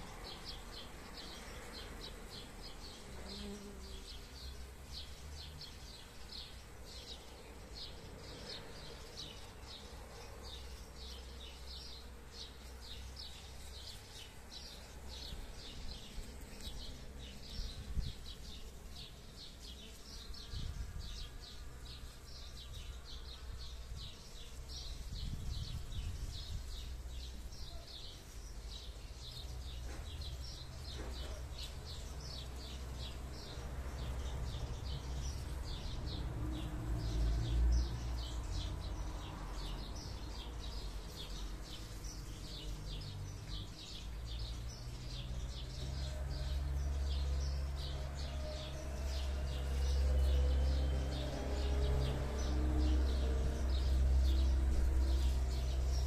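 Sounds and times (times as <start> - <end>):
honeybees buzzing: 0.0 - 25.1
wind rumble on microphone: 17.6 - 18.3, 20.4 - 21.3, 24.7 - 26.9.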